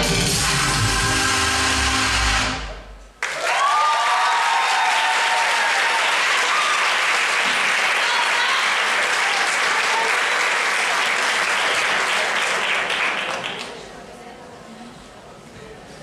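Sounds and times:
performance music: 0.0s - 3.3s
audience applause and cheering: 0.0s - 13.7s.

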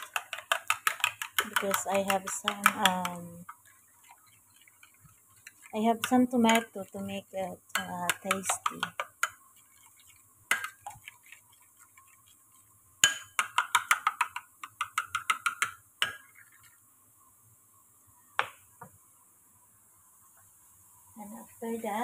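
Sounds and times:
spoon beating eggs in bowl: 0.0s - 16.8s.

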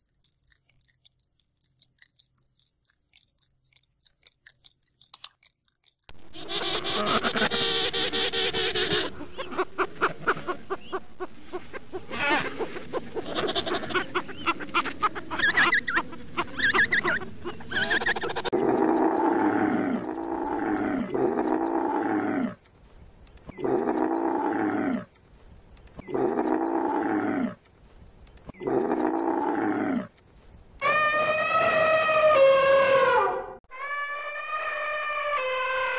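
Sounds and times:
camel calling: 6.1s - 22.6s, 26.0s - 27.6s
penguins calling: 6.2s - 18.5s.

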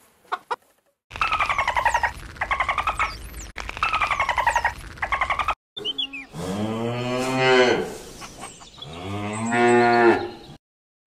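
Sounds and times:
cow mooing: 6.3s - 8.0s, 8.9s - 10.4s.

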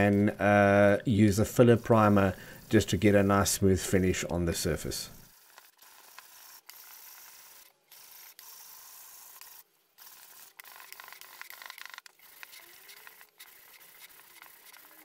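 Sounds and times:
hand sanding with sandpaper: 10.5s - 15.0s.

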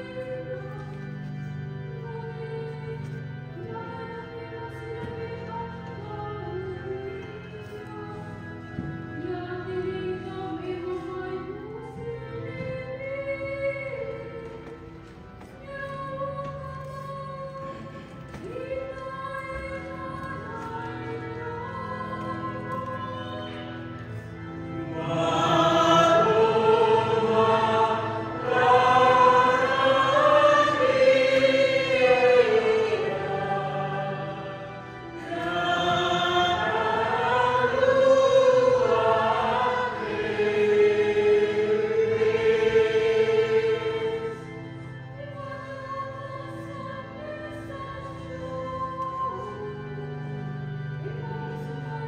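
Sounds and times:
choir singing a hymn: 0.0s - 52.0s
held accompaniment: 0.0s - 52.0s.

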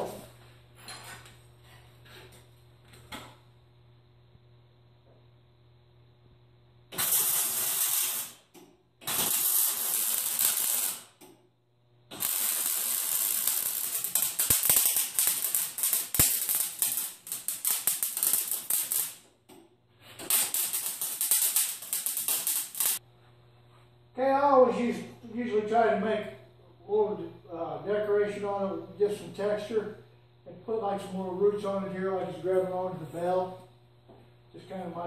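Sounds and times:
arc welder crackling: 6.9s - 11.5s, 12.1s - 23.0s.

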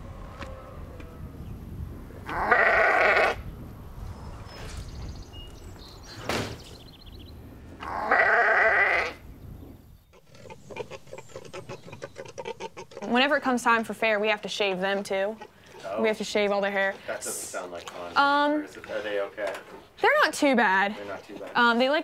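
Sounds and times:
sheep bleating: 2.3s - 3.4s, 7.8s - 9.2s.

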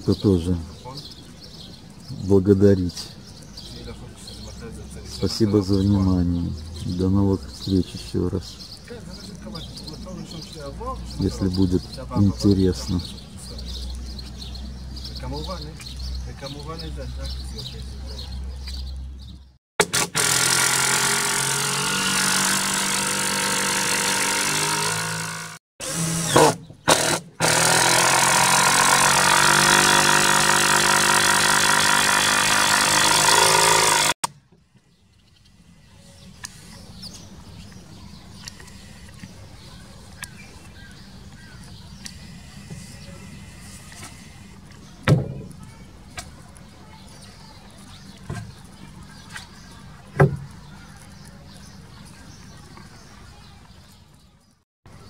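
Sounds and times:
cordless drill driving screws: 19.8s - 34.2s
knocks on wooden boards: 50.2s - 50.5s.

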